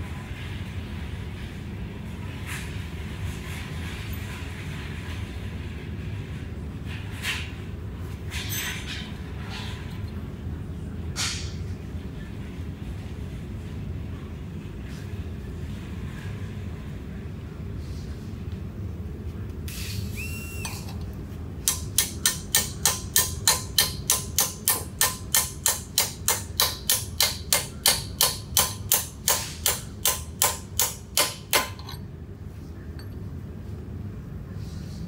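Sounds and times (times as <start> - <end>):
mallet striking metal: 21.7 - 32.0.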